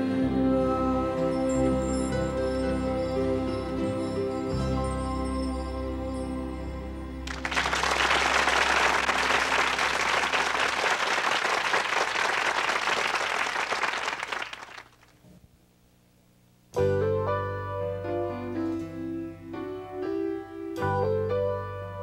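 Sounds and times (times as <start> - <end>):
gospel song held chord: 0.0 - 14.8
audience applause: 7.3 - 15.1.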